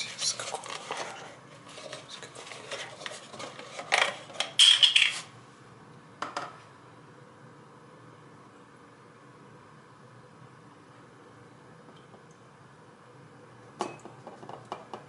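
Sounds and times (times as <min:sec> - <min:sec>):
kitchen things knocking on a counter: 0:06.2 - 0:06.6, 0:13.8 - 0:15.0.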